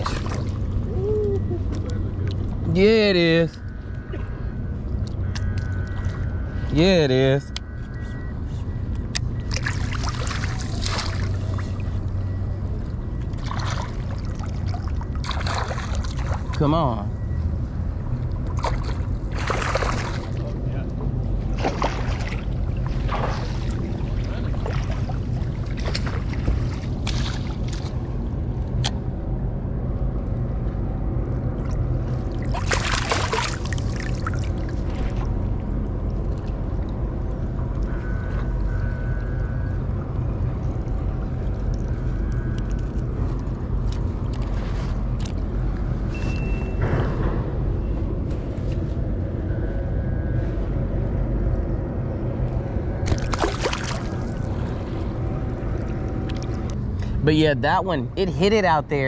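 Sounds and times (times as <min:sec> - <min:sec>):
water splashing and sloshing: 0:00.0 - 0:06.7, 0:07.6 - 0:29.0, 0:31.2 - 0:49.8, 0:52.4 - 0:57.2
steady low rumble: 0:00.0 - 0:59.0
fish thrashing at surface: 0:32.4 - 0:35.2, 0:53.0 - 0:54.6.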